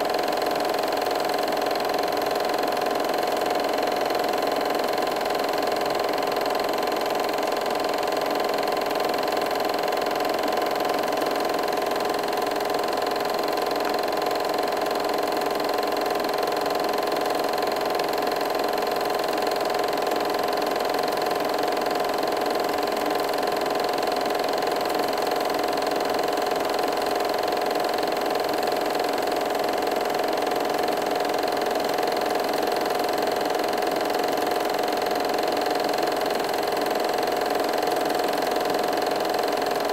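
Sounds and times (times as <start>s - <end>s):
movie projector whirring: 0.0s - 39.9s.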